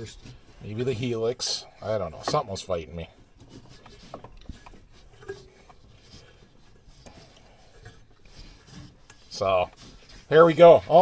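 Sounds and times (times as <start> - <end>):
faint clicks and rubbing: 0.0 - 11.0.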